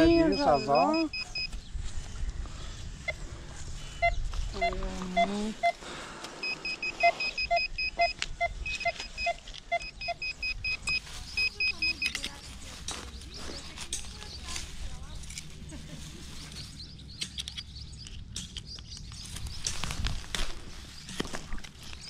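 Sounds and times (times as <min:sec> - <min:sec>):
metal detector short beeps: 0:00.0 - 0:01.6, 0:04.0 - 0:12.5.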